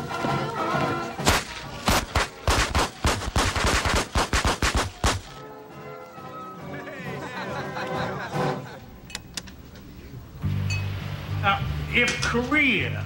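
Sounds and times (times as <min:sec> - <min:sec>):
sharp bangs: 0:01.2 - 0:05.4.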